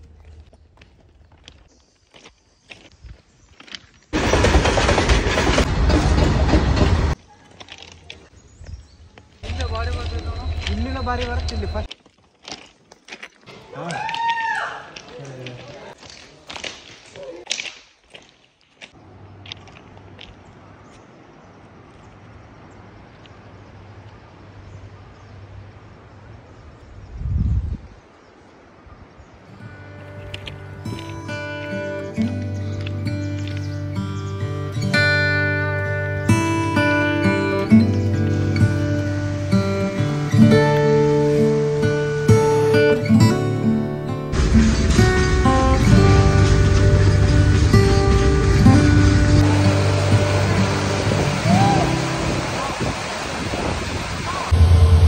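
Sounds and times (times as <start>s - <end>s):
footsteps on track ballast: 0.0s - 21.1s
freight train wagons rumbling past: 4.2s - 7.2s, 9.4s - 11.9s, 44.3s - 52.6s, 54.4s - 55.0s
outdoor rushing noise: 4.2s - 7.2s, 44.3s - 55.0s.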